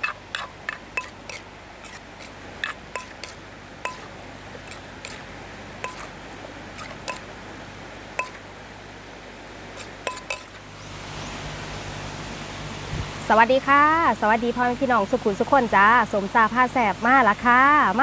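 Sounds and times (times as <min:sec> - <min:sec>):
spoon clinking against a mortar: 0:00.0 - 0:01.4, 0:02.6 - 0:05.2, 0:05.8 - 0:06.1, 0:06.8 - 0:07.3, 0:08.2 - 0:08.4, 0:10.1 - 0:10.6
water rushing over a weir: 0:00.0 - 0:14.2.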